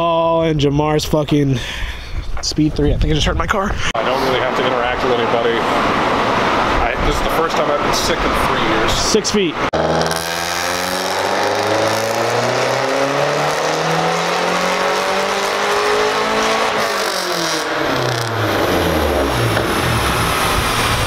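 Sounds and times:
car engine revving at full throttle: 4.0s - 8.9s, 9.6s - 21.0s.

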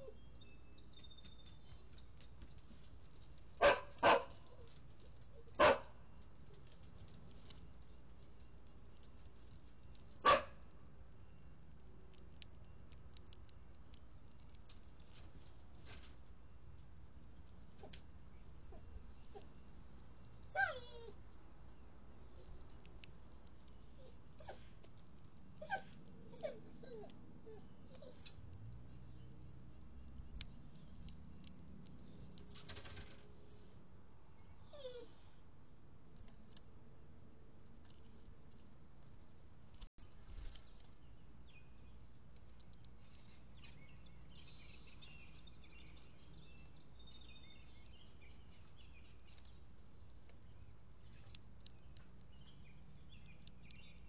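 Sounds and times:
dog barking: 3.6s - 4.4s, 5.6s - 6.0s, 10.2s - 10.6s.

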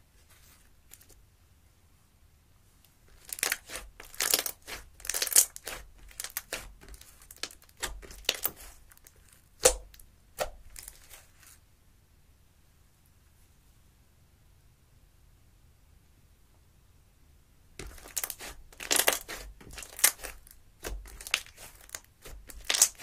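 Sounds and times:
slime crackling and popping: 3.1s - 11.5s, 17.8s - 23.0s.

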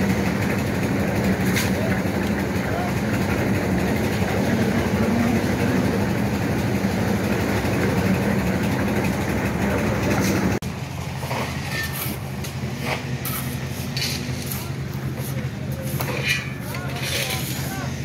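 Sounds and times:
engine drone: 0.0s - 18.0s
short scrapes and knocks: 11.2s - 17.8s.

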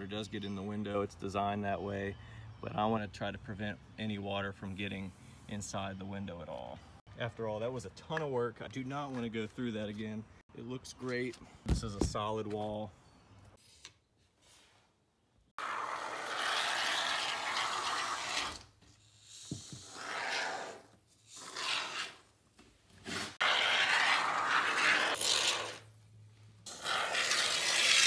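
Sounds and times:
expanding foam spray hissing: 26.7s - 28.0s.

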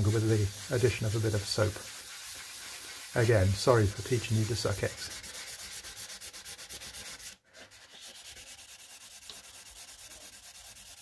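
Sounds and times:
wet sanding strokes: 0.0s - 11.0s.

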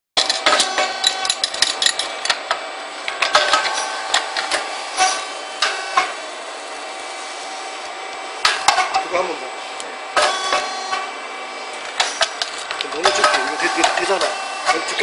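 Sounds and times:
steady mechanical hum: 0.2s - 15.0s.

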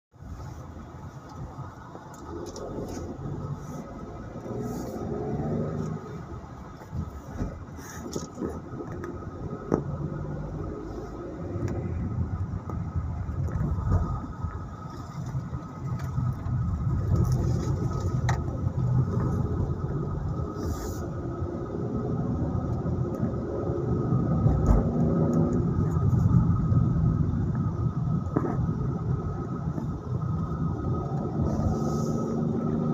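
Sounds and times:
car engine from inside cabin: 0.2s - 32.9s.

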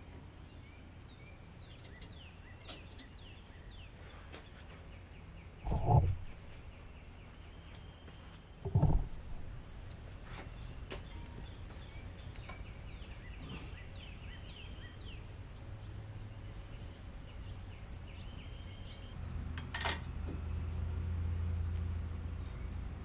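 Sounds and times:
birds chirping: 0.4s - 19.2s
low hum: 5.6s - 8.0s, 8.6s - 19.6s.

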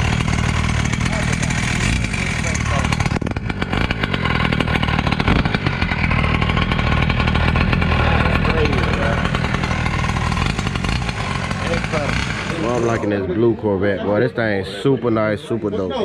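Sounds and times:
small two-stroke engine buzzing: 0.0s - 16.0s
voices talking: 0.8s - 3.1s, 7.9s - 9.9s, 11.4s - 16.0s.

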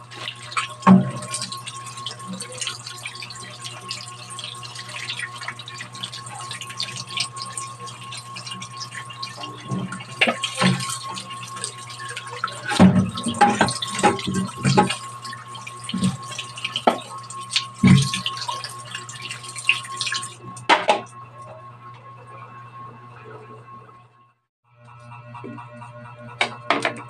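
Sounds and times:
hands rubbing and rinsing chicken: 0.0s - 20.4s
tap water running: 0.0s - 21.1s
splashes and knocks: 0.2s - 1.7s, 9.4s - 11.6s, 12.4s - 15.0s, 15.9s - 18.6s.

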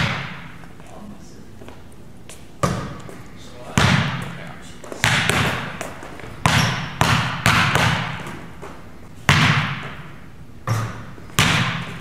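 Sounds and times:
basketball thudding in gym: 0.0s - 0.5s, 2.6s - 3.0s, 3.7s - 4.3s, 5.0s - 8.5s, 9.2s - 12.0s.

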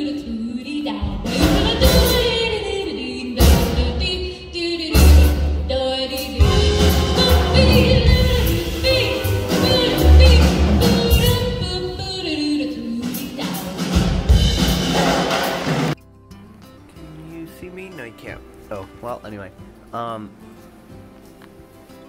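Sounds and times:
woman singing jazz: 0.0s - 14.3s
big band playing: 1.2s - 2.5s, 4.9s - 12.3s, 13.0s - 16.0s.

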